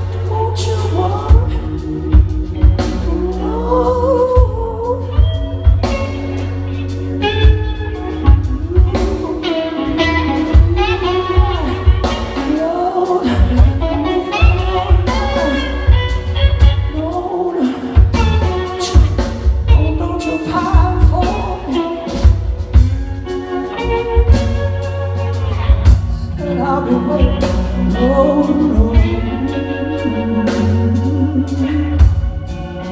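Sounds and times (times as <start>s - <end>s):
electric guitar: 0.0s - 32.9s
man singing: 16.9s - 22.3s, 26.1s - 32.9s.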